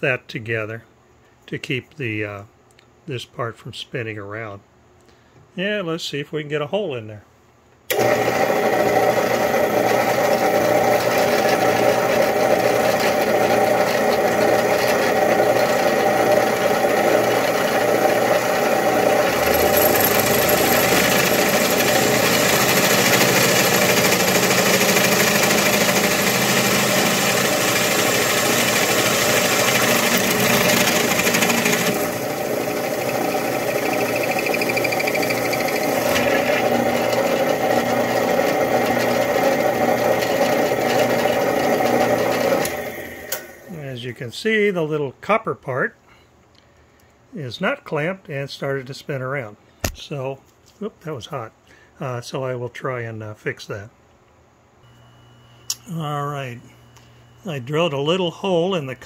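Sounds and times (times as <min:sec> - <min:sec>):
drill bit cutting metal: 0:07.9 - 0:43.5
drill press motor hum: 0:07.9 - 0:43.7.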